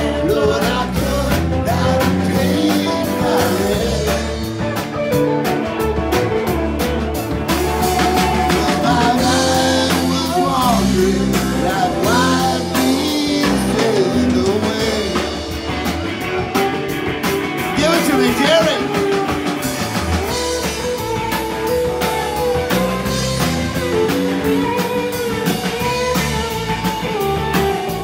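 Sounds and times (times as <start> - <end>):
man singing: 0.0 - 4.7, 7.7 - 15.9, 17.7 - 19.2
bass guitar: 0.0 - 28.0
drum kit steady beat: 0.0 - 28.0
grungy electric guitars: 0.0 - 28.0.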